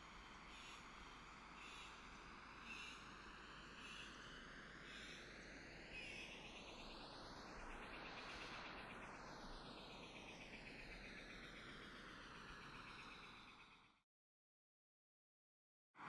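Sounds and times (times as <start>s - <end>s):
high frog or insect call: 0.5s - 0.9s, 1.6s - 2.0s, 2.6s - 3.2s.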